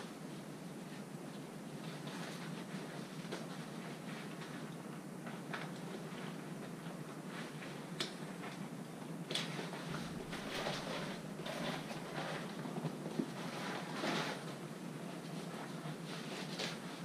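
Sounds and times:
low steady hum: 0.0s - 17.0s
straps and fabric rustling: 9.3s - 17.0s.

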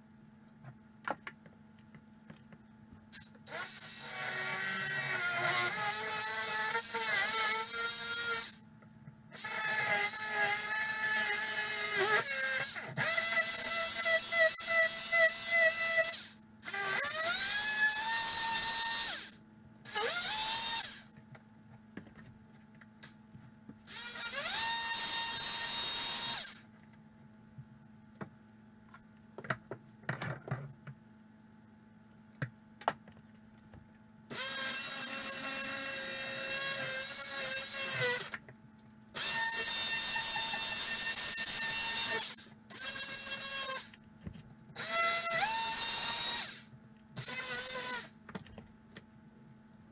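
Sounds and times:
power saw cutting drywall: 3.5s - 8.6s, 34.3s - 38.3s.

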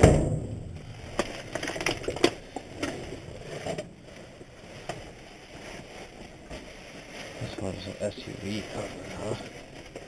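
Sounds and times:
light rustle: 0.7s - 10.0s
packaging clicking and knocking: 1.1s - 3.0s.

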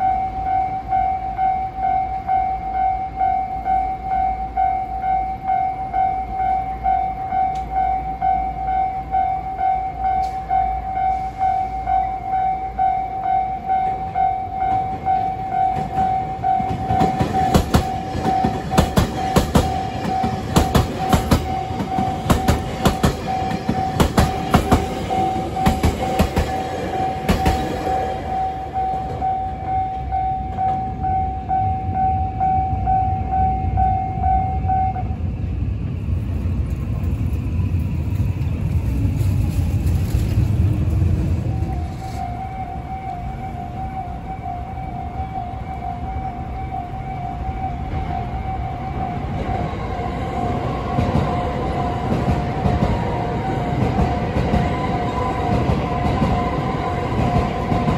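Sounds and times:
level-crossing warning bell ringing: 0.0s - 35.3s, 41.2s - 57.9s
low street traffic rumble: 4.4s - 57.9s
train wheels clacking over rail joints: 14.7s - 29.3s.

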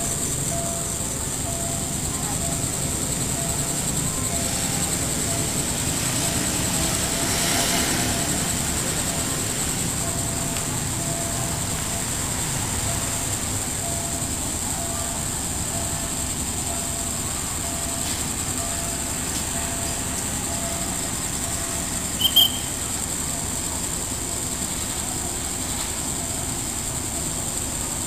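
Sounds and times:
distant diesel train rumble: 0.0s - 28.0s
high-pitched hiss: 0.0s - 28.0s
sharp high squeak: 22.1s - 22.8s.

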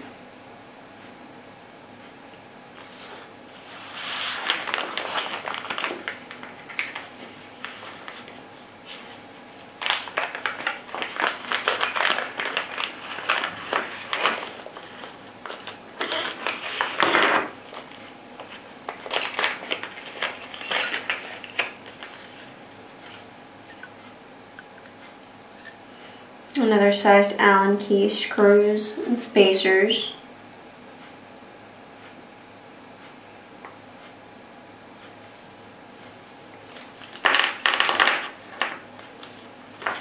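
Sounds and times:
plastic bags crinkling: 4.4s - 8.3s, 9.8s - 17.0s, 17.8s - 22.4s
small metal parts clinking: 5.0s - 5.9s, 10.0s - 14.8s, 15.6s - 17.5s, 19.1s - 22.5s, 23.6s - 24.0s, 24.6s - 25.8s, 36.4s - 40.0s.

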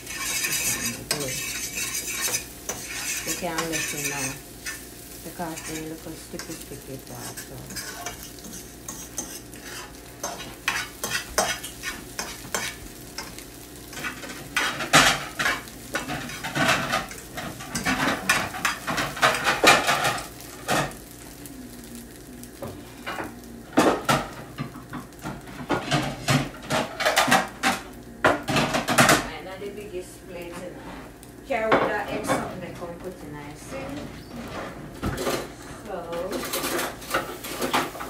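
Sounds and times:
fork scraping frying pan: 0.0s - 21.0s.

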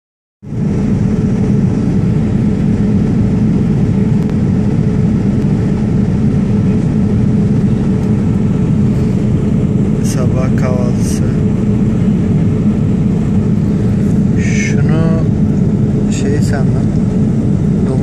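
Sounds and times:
airliner cabin drone: 0.4s - 18.0s.

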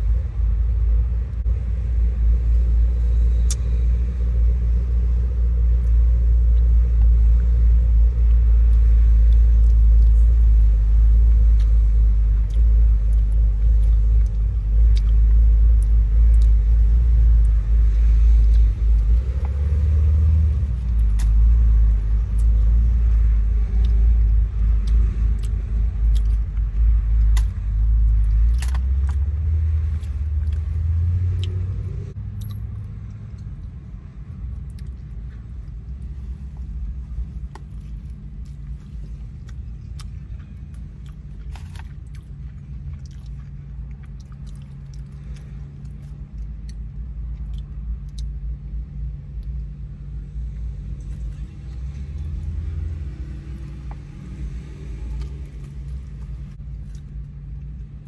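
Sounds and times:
clicks and crinkles of eating: 32.4s - 49.8s, 55.0s - 58.0s.

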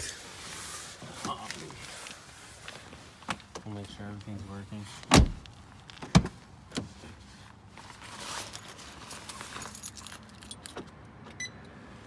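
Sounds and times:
light clinks and rattles: 8.5s - 10.9s.

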